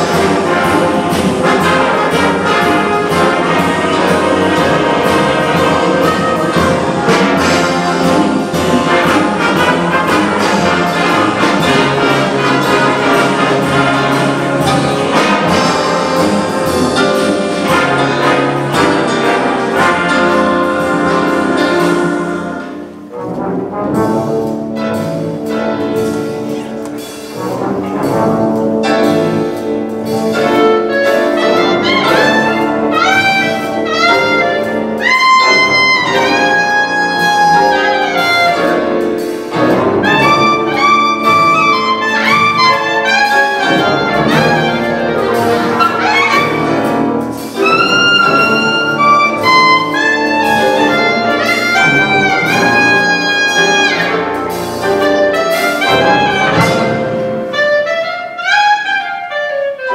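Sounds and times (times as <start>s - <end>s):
wind band playing: 0.0s - 59.9s.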